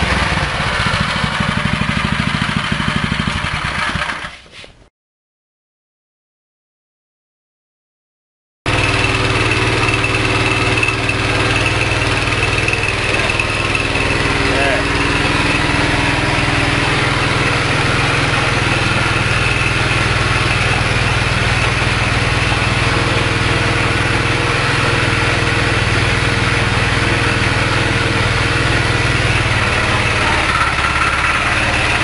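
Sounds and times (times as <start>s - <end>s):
small petrol engine running: 0.0s - 4.4s, 8.7s - 32.0s.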